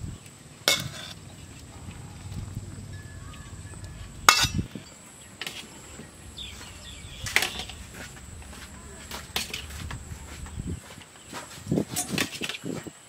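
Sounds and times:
spatula clinking and scraping wok: 0:00.7 - 0:01.7.

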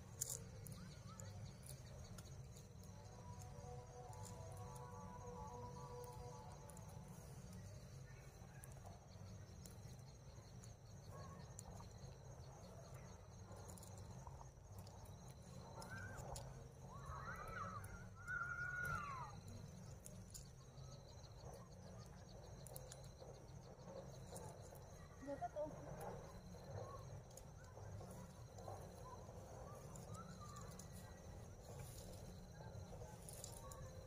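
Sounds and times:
insects chirring: 0:00.0 - 0:34.0
animal calls: 0:15.6 - 0:19.9.

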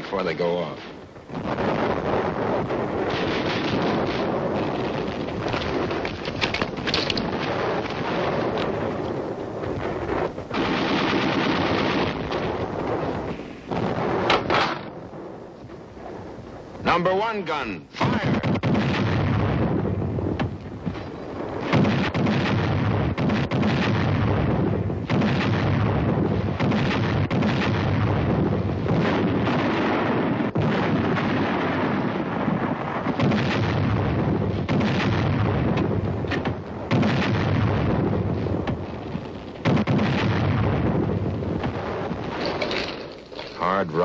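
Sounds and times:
howitzer gun reports: 0:00.0 - 0:09.4, 0:16.6 - 0:24.3, 0:41.5 - 0:44.0
heavy rumble: 0:00.7 - 0:17.0, 0:18.1 - 0:44.0
sharp loud artillery reports: 0:16.8 - 0:39.0.

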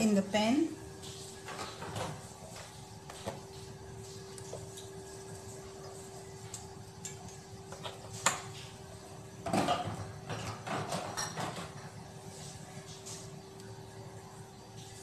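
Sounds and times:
kitchen knocks and clatter: 0:01.4 - 0:03.5, 0:07.0 - 0:08.8, 0:09.4 - 0:12.0.

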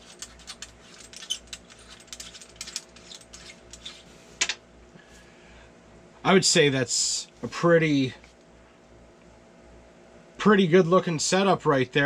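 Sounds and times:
fishing reel clicks and rattles: 0:00.0 - 0:04.0.

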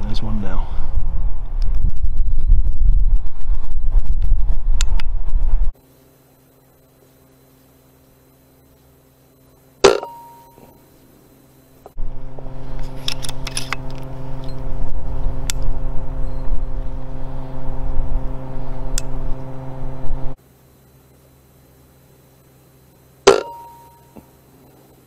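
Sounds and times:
low hum: 0:00.0 - 0:20.4, 0:23.3 - 0:24.3
clicks and handling noise: 0:12.7 - 0:14.6.

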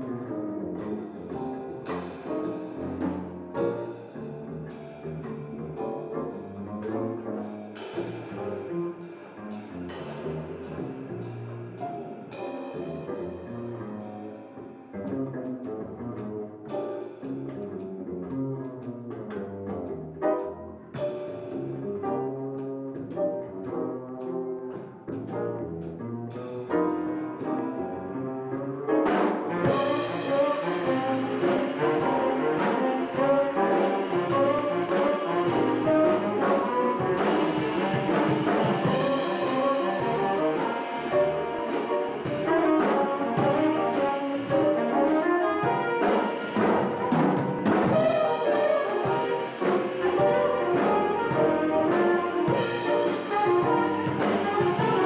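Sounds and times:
jazz band playing blues: 0:00.0 - 0:55.0
flugelhorn: 0:12.4 - 0:17.8, 0:25.6 - 0:55.0
tenor saxophone: 0:29.5 - 0:55.0.

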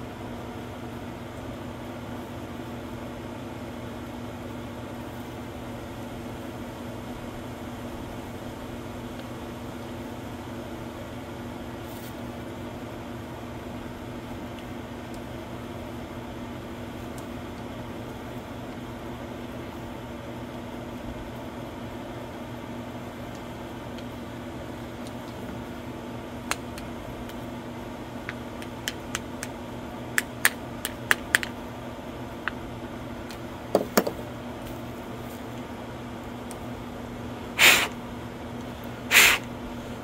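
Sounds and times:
steady low hum: 0:00.0 - 0:40.0
short rustling scrapes: 0:11.8 - 0:12.2.

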